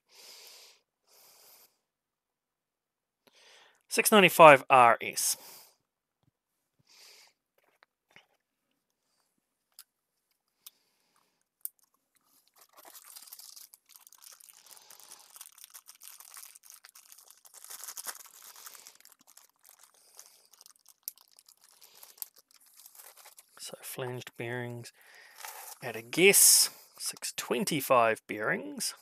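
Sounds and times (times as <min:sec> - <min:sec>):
plastic bag crinkling: 0:11.7 - 0:23.7, 0:25.2 - 0:25.9.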